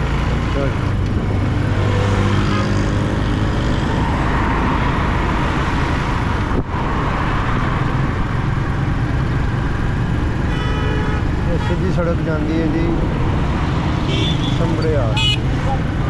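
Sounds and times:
traffic: 0.0s - 16.0s
wind rushing over microphone: 2.8s - 8.5s.

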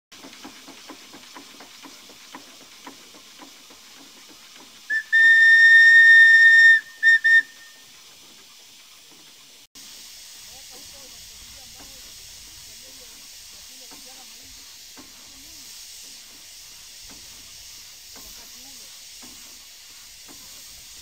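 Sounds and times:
steam engine exhaust beats: 0.1s - 21.0s
steam whistle toots: 4.9s - 7.9s.

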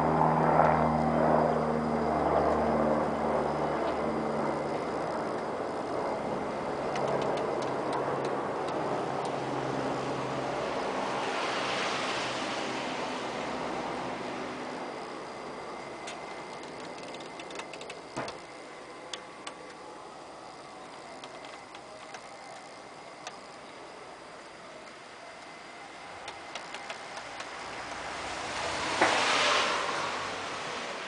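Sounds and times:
steady background hiss: 0.0s - 31.0s
rushing noise: 5.6s - 31.0s
light clicks: 6.9s - 9.4s, 16.0s - 18.4s.

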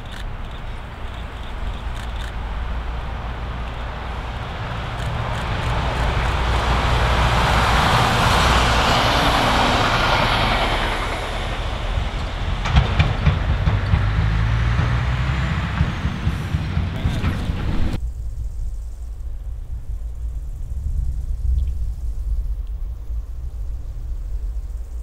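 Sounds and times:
wheels knocking on rails: 0.0s - 18.0s
railbus passing: 0.0s - 25.0s
truck rumbling: 0.0s - 25.0s.

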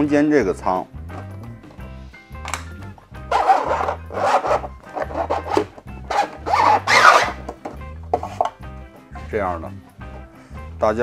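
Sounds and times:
background music: 0.0s - 11.0s
plastic box scraping against housing: 3.3s - 7.6s.

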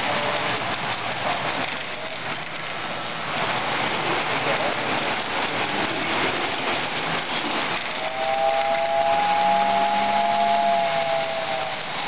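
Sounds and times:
model trains on metal track: 0.0s - 12.0s.

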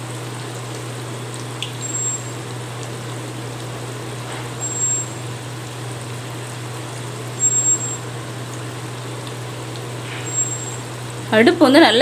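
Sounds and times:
batter deep-frying in oil: 0.0s - 12.0s
constant low hum: 0.0s - 12.0s
brief high whine: 7.4s - 8.0s.

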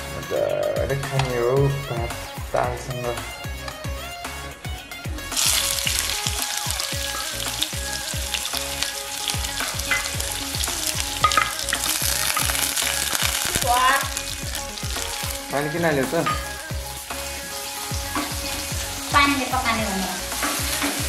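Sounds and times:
low regular thudding beat: 0.3s - 21.0s
food frying in hot oil: 5.3s - 21.0s.

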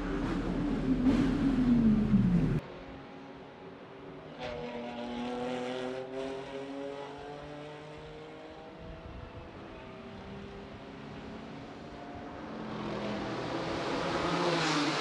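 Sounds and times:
race car engine accelerating: 0.0s - 2.6s.

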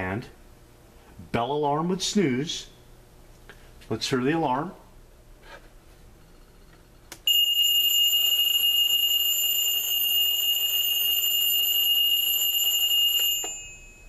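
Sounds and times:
alarm clock bell ringing: 7.3s - 14.0s.

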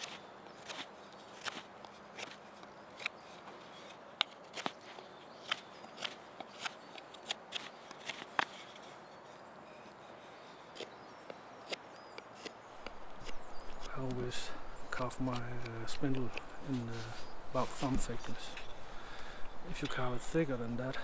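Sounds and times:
knife scraping wood: 0.0s - 14.2s.

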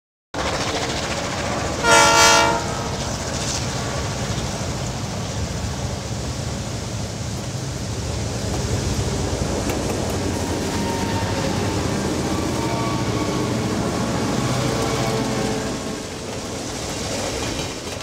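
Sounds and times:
train rumbling: 0.4s - 18.0s
train horn blast: 1.8s - 3.2s, 10.7s - 16.1s.

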